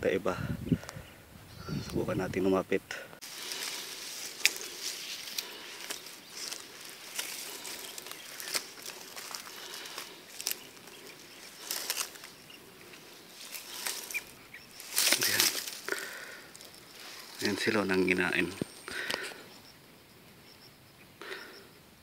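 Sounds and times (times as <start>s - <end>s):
footsteps through grass: 3.2s - 19.5s.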